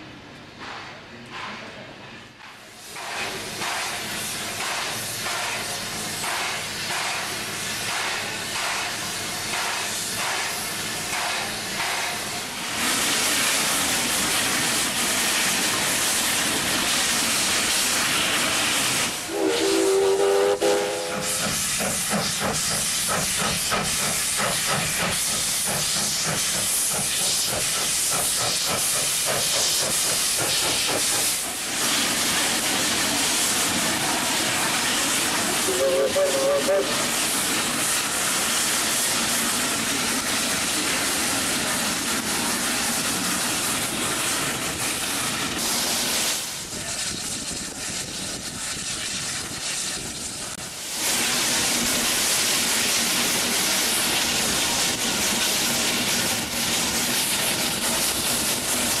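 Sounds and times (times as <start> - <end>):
steam locomotive chuffing: 0.6 - 59.0
steam hissing: 2.5 - 59.0
steam whistle blast: 19.3 - 21.4, 35.6 - 37.1.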